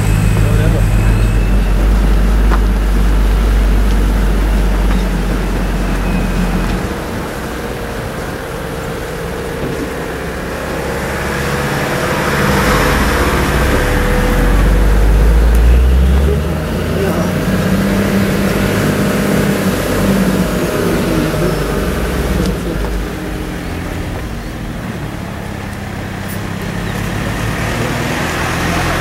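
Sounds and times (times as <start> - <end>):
vehicle engine rumbling: 0.0 - 29.0.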